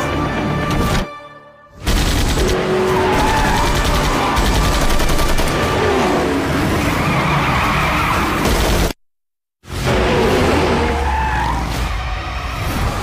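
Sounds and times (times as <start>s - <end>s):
rapid gunfire: 1.8s - 5.8s
tyres skidding: 5.5s - 8.6s, 9.7s - 13.0s.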